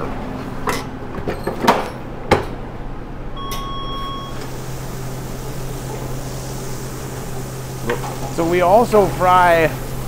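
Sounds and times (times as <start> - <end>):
kitchen equipment hum: 0.0 - 10.0
electronic beep: 3.4 - 4.4.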